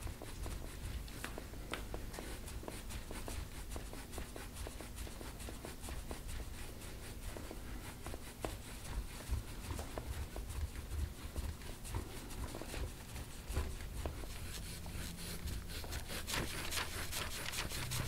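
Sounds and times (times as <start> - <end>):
hands rubbing skin: 0.0 - 18.0
faint irregular clicks: 0.3 - 2.8.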